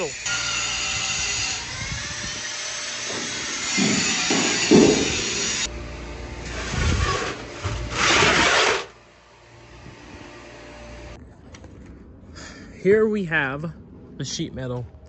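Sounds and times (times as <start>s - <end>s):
sheet metal scraping: 6.4s - 9.0s.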